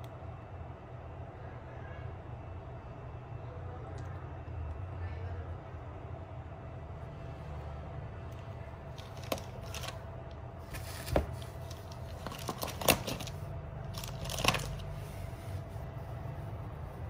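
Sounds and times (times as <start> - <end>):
plastic and bubble wrap crinkling: 8.9 - 10.0, 10.6 - 15.0.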